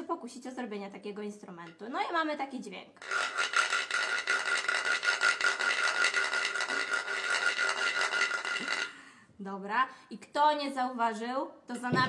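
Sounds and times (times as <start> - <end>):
wooden guiro scraped with stick: 3.0 - 9.0.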